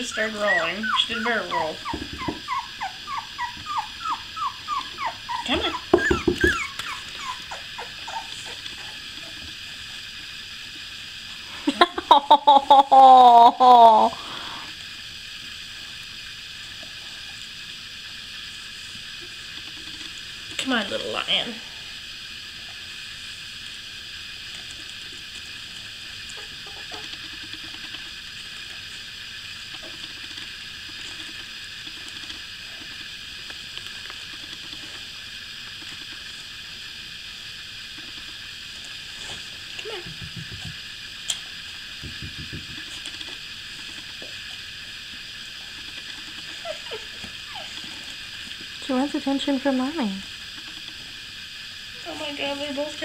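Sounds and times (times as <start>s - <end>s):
puppy whimpering: 0.0s - 9.4s, 26.3s - 27.2s, 46.4s - 48.2s
steady background hiss: 0.0s - 53.0s.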